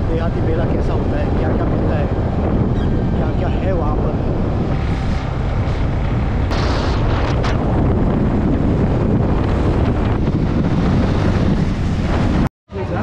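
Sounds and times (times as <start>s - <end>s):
motorcycle engine and road noise: 0.0s - 13.0s
wind buffeting microphone: 0.0s - 13.0s.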